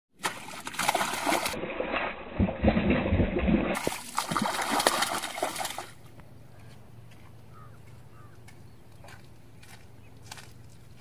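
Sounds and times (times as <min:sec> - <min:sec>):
fish splashing in water: 0:00.2 - 0:06.1.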